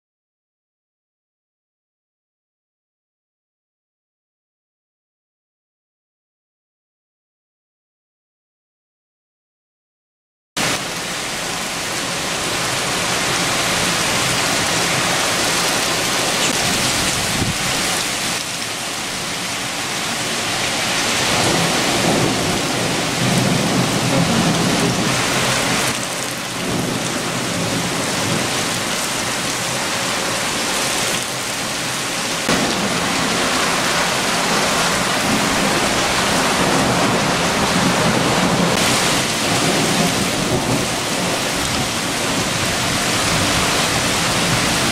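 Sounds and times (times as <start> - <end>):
heavy rain on trees and grass: 10.6 - 44.9
low thunder rumbles: 21.2 - 25.9, 32.4 - 44.9.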